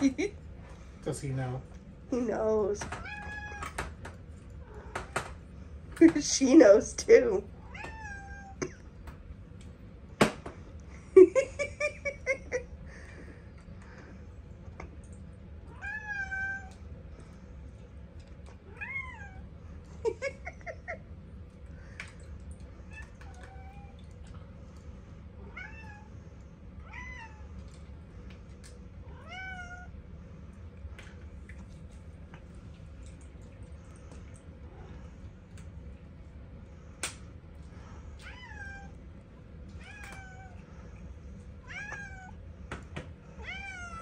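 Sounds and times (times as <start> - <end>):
cats meowing: 2.9 - 3.8, 7.6 - 8.6, 15.7 - 16.8, 18.6 - 19.5, 29.1 - 29.9, 39.8 - 40.6, 41.6 - 42.4, 43.4 - 44.0.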